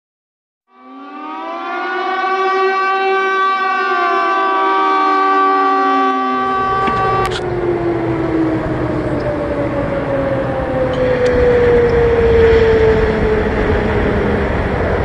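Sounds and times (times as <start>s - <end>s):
warning siren: 0.7s - 15.0s
wind rumbling on microphone: 6.3s - 15.0s.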